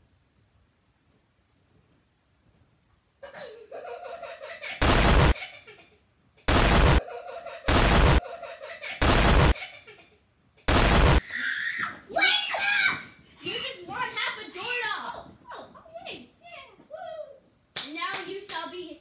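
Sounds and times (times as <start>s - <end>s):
child laughing: 3.2s - 6.0s, 7.0s - 10.2s
harsh noise bursts: 4.8s - 5.4s, 6.5s - 7.0s, 7.7s - 8.2s, 9.0s - 9.6s, 10.7s - 11.2s.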